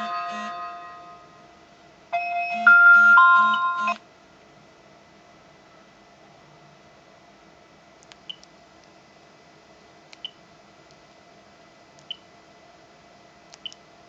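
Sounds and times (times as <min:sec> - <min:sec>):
high key beeps: 0:00.0 - 0:01.2, 0:02.2 - 0:04.0.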